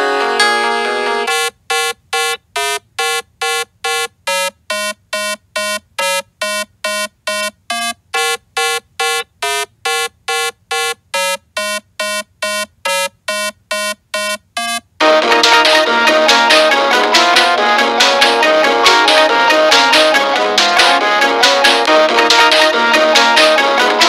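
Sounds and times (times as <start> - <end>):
buzzy synthesized beep melody: 14.2 - 24.0.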